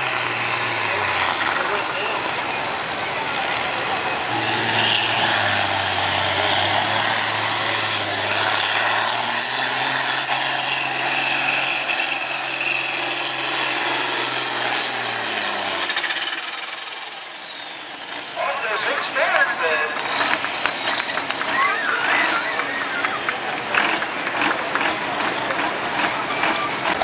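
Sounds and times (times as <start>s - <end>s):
tractor engine under load: 0.0s - 27.0s
high whine: 17.6s - 21.0s.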